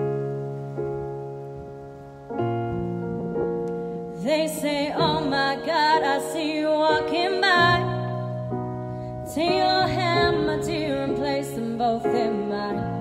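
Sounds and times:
soft piano chords: 0.0s - 13.0s
woman singing with vibrato: 4.2s - 8.4s, 9.2s - 13.0s.

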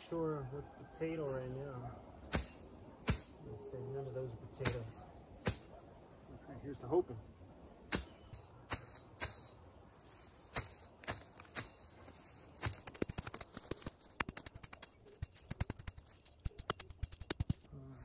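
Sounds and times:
machete chopping weeds and soil: 2.2s - 3.4s, 4.6s - 5.8s, 7.9s - 17.7s.

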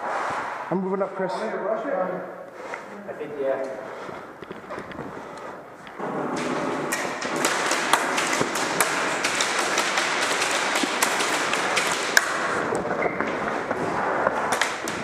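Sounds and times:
pellets ticking on plywood: 5.8s - 15.0s
airsoft gunfire clatter: 6.0s - 13.1s.

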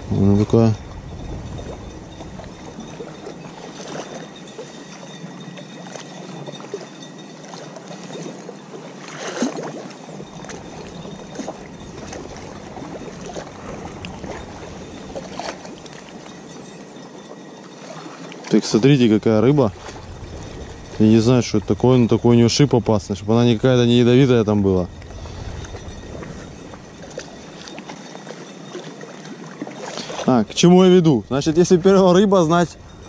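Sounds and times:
rushing water: 0.0s - 33.0s.

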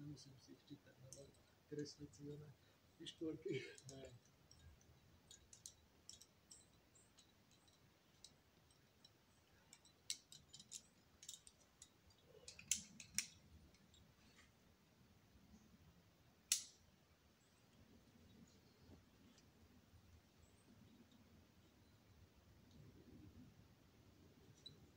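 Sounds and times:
climbing gear clicking and clinking: 3.5s - 14.4s.

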